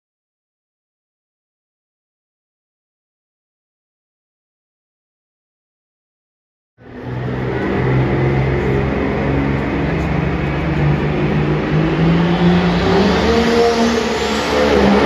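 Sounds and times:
tractor engine revving: 6.9 - 15.0.

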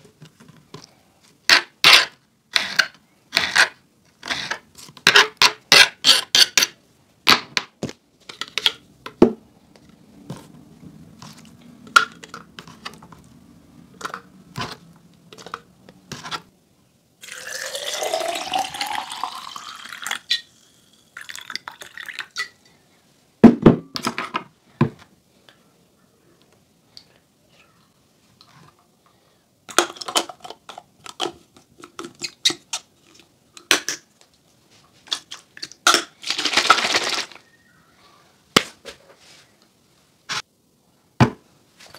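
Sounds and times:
water pouring into bottle: 17.2 - 20.4
lime pieces dropping into bottle: 35.2 - 37.4.

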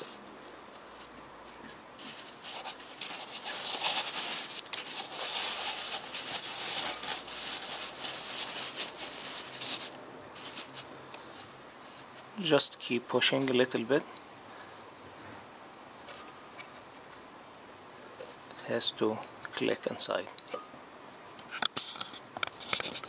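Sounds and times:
paper and cloth rustling: 0.0 - 12.4, 21.8 - 23.0.

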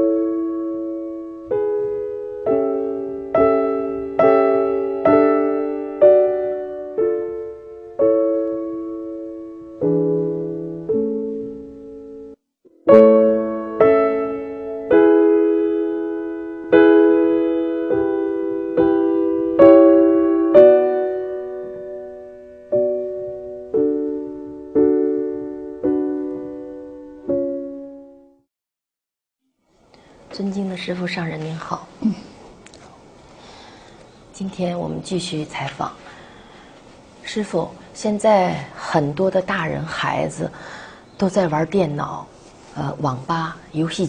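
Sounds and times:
slow gentle piano chords: 0.0 - 28.5.

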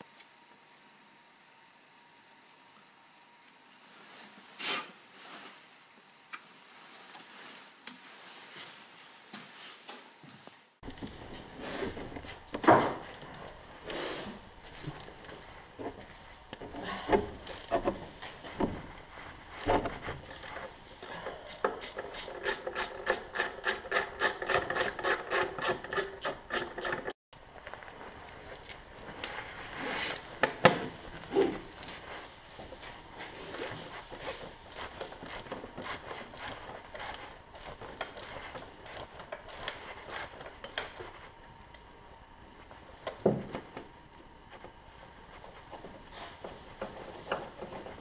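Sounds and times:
ratchet wrench clicking: 21.5 - 27.0.

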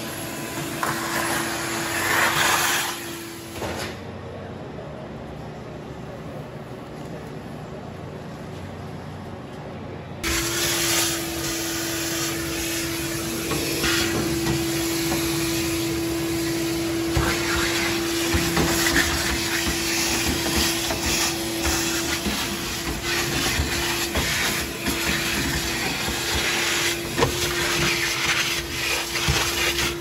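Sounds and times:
machine motor whine and air hiss: 0.0 - 4.2, 10.2 - 30.0.

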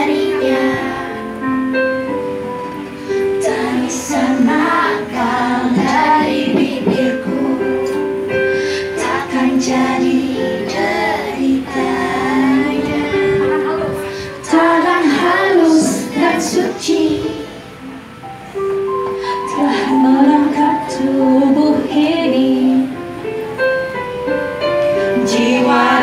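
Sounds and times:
children singing: 0.0 - 1.7, 3.2 - 17.8, 19.5 - 22.9, 24.9 - 26.0
instrumental backing music: 0.0 - 26.0.

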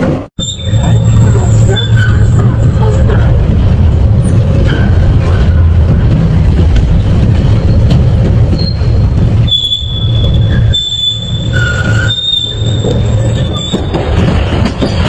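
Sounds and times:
high squeal of blades: 9.5 - 13.8.

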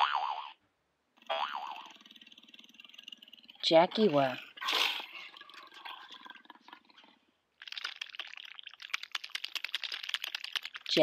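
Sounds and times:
water bubbling: 1.3 - 10.8.

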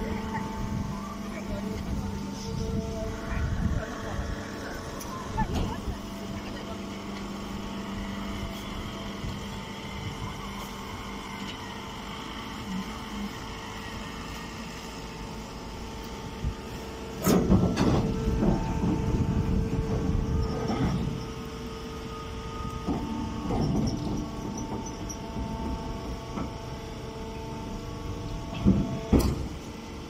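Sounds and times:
straw baler machine hum: 0.0 - 30.0.

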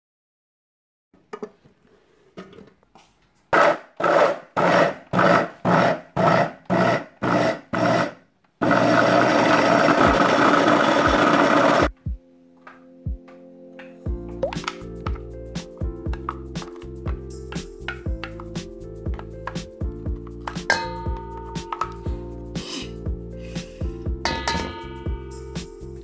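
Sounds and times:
electric food chopper grinding: 4.0 - 11.9.

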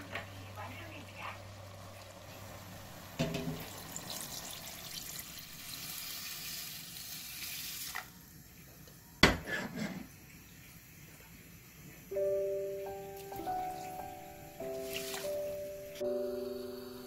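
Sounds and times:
water pouring into a pot: 1.6 - 8.3, 14.7 - 15.4
metal clank: 3.2 - 3.7.

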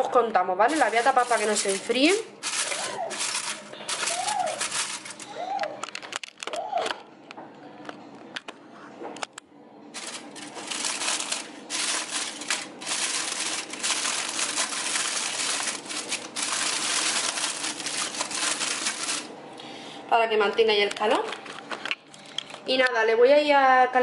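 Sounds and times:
kitchen wrap crinkling: 0.6 - 6.5, 10.0 - 19.3.

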